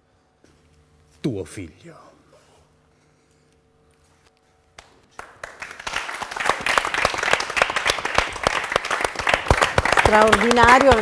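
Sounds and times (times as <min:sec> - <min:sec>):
audience applause: 0:05.1 - 0:11.0.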